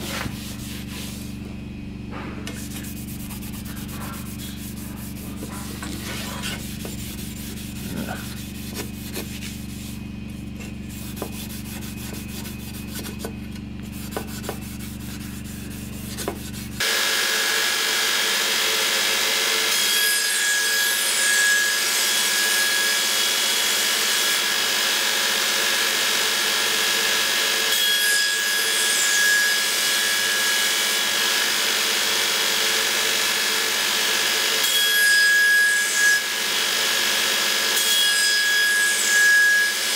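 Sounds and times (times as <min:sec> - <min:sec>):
steady low hum: 0:00.0 - 0:16.8.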